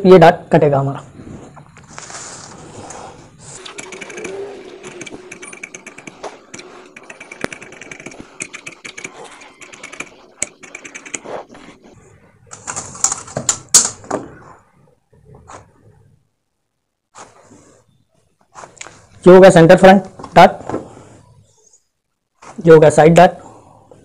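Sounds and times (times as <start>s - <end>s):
fabric rustling and scraping: 1.1s - 3.6s, 17.1s - 19.1s.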